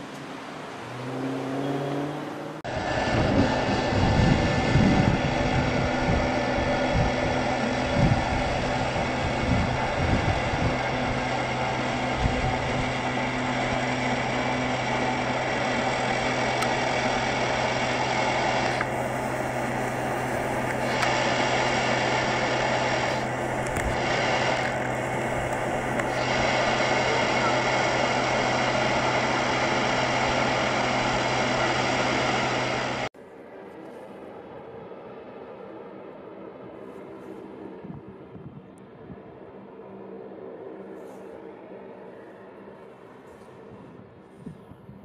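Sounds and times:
machine drone with whine: 1.6s - 45.0s
wind thumps on microphone: 2.8s - 10.9s.

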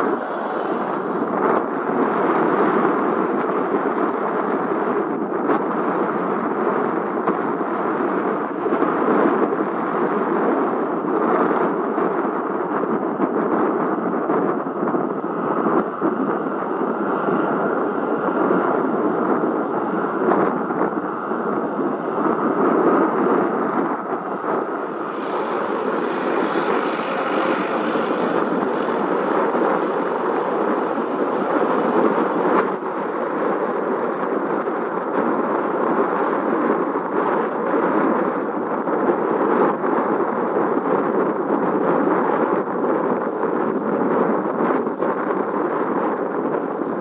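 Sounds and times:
airplane engines running: 0.0s - 47.0s.

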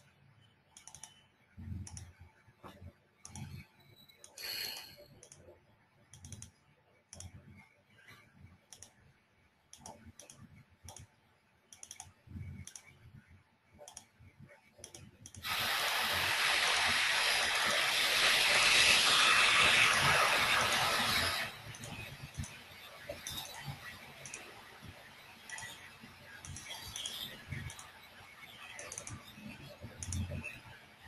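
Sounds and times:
mouse and keyboard clicks: 0.8s - 7.6s, 8.7s - 9.1s, 9.7s - 13.1s, 13.8s - 15.5s, 21.1s - 24.6s, 25.4s - 28.0s, 28.7s - 30.6s
loud steady rushing noise: 15.5s - 22.3s.

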